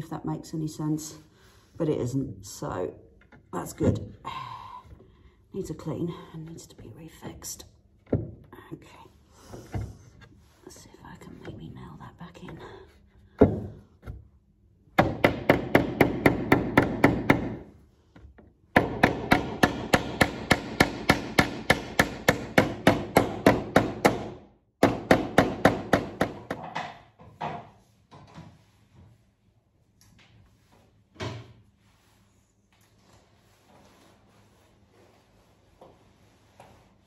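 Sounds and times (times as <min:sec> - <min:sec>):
hammer striking nail into wood: 0:15.0 - 0:17.6, 0:18.7 - 0:27.0.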